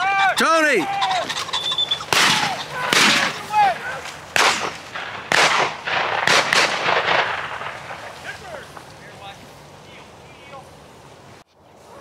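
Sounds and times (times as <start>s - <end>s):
honking bird calls: 0.0s - 4.2s
shotgun shots: 2.0s - 8.6s.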